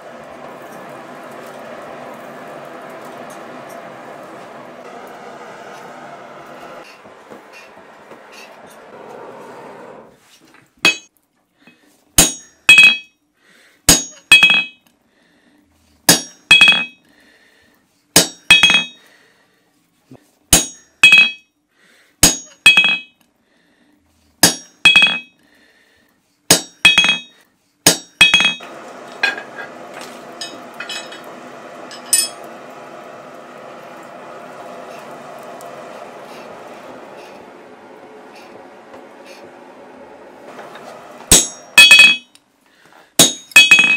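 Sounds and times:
forge bellows rushing air: 0.0s - 10.3s, 28.6s - 42.2s
hammer striking punch on anvil: 10.9s - 11.1s, 12.2s - 13.1s, 13.9s - 14.8s, 16.1s - 17.0s, 18.2s - 19.0s, 20.5s - 21.4s, 22.2s - 23.1s, 24.4s - 25.3s, 26.5s - 27.3s, 27.9s - 28.6s, 41.3s - 42.3s, 43.2s - 43.9s.

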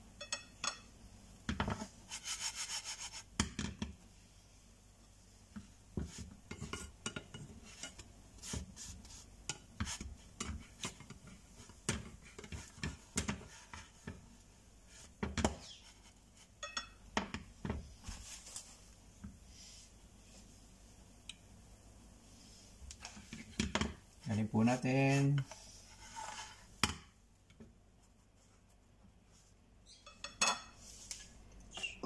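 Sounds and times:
spatula scraping frying pan: 1.7s - 3.4s, 6.0s - 14.2s, 25.2s - 26.8s.

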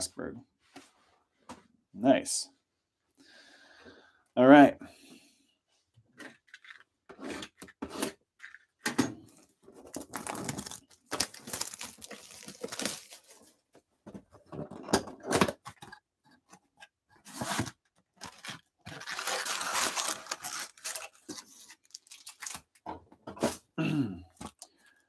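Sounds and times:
card packs rustling and tearing: 9.7s - 13.6s, 17.3s - 22.8s.

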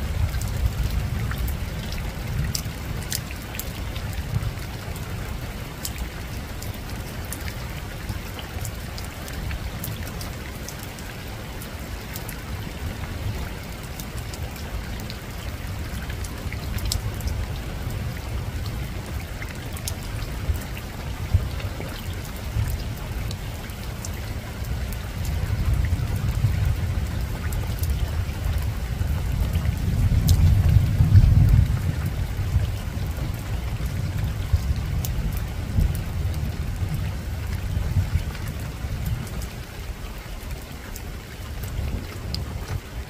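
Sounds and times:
raindrops ticking: 0.0s - 43.0s
soft rain on a rooftop: 0.0s - 43.0s
distant thunder rumble: 24.8s - 39.4s.

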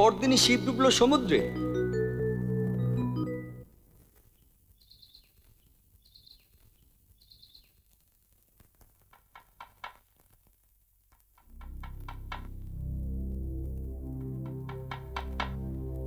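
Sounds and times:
background music: 0.0s - 3.7s, 11.5s - 16.0s
faint chirping trills: 4.7s - 7.9s.

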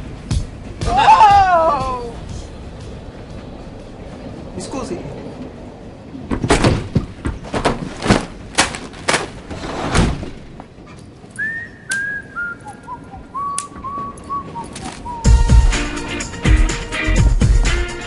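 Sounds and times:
irregular thumps and knocks: 6.3s - 9.4s
person whistling: 11.4s - 15.5s.

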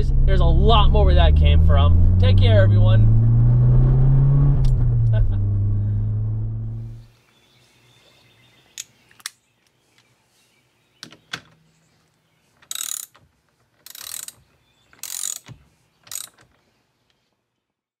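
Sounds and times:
hand ratchet ratcheting: 12.6s - 16.6s
metallic clicks: 12.6s - 16.6s.

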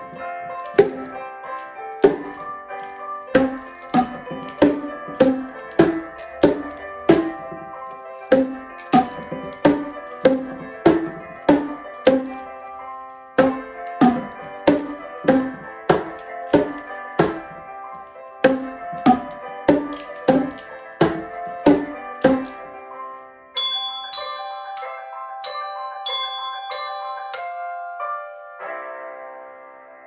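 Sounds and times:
plastic percussion tubes struck: 0.0s - 12.5s, 13.4s - 17.6s, 18.4s - 22.6s, 23.6s - 28.3s
ringing chime-bar notes: 23.6s - 28.7s.

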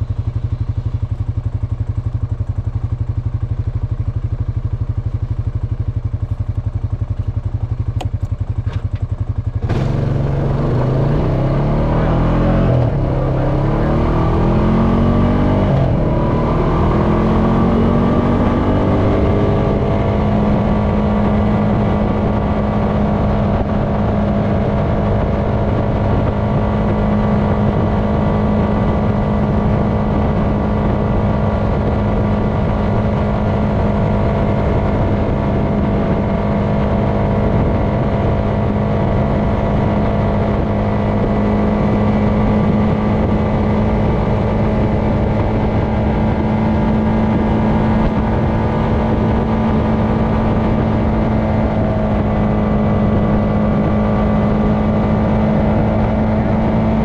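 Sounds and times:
atv engine droning: 0.0s - 57.0s.

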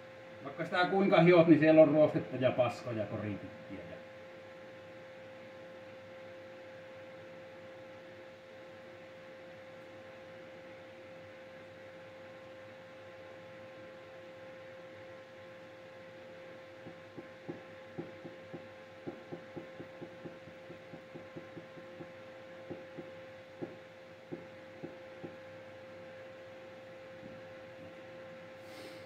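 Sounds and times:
steady electrical hum: 0.0s - 29.0s.

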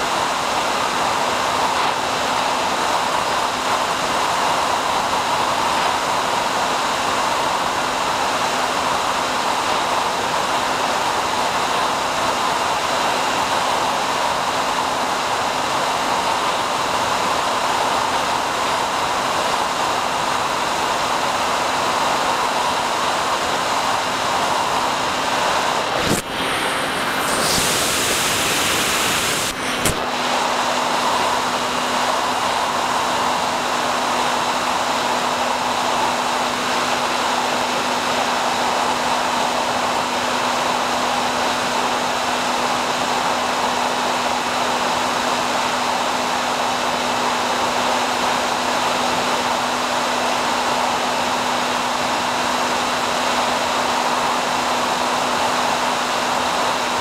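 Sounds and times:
video downlink hiss: 23.2s - 45.9s.

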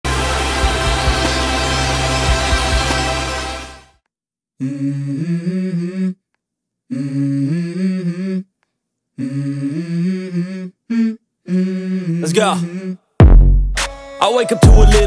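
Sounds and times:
electronic intro music: 0.0s - 4.0s
person humming vocal phrase: 4.6s - 6.2s, 9.2s - 13.0s.

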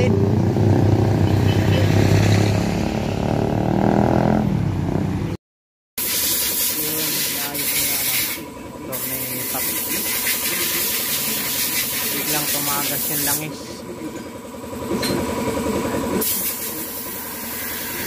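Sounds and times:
street traffic: 0.0s - 5.4s, 6.0s - 18.0s
vehicle engine running: 6.8s - 18.0s.

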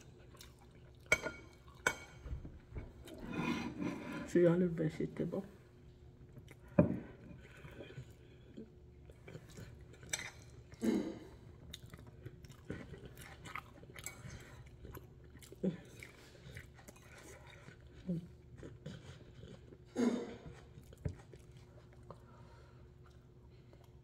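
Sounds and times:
close chewing with mouth clicks: 0.0s - 2.2s, 6.2s - 24.0s.

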